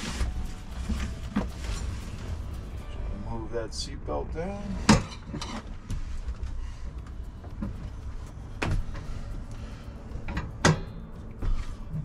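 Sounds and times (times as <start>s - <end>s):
low rumble: 0.0s - 12.0s
sharp metal clunks and knocks: 10.3s - 11.1s.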